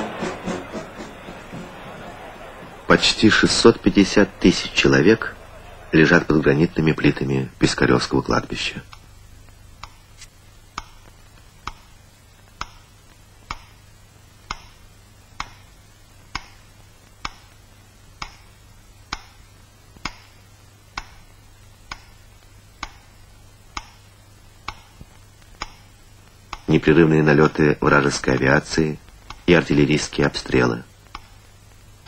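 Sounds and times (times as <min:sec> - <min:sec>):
metronome ticking: 0:08.8 - 0:26.8, 0:30.9 - 0:32.0.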